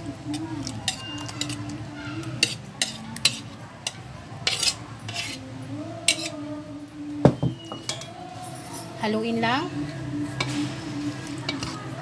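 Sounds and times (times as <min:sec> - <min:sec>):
spoon scraping a glass bowl: 0:00.9 - 0:01.7, 0:04.4 - 0:05.4, 0:06.1 - 0:06.4.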